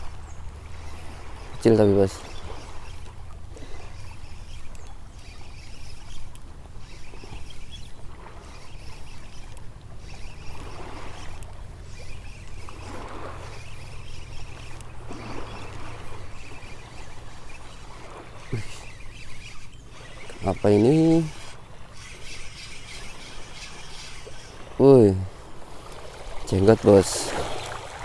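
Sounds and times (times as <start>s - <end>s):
small waves lapping at shore: 0.0s - 28.0s.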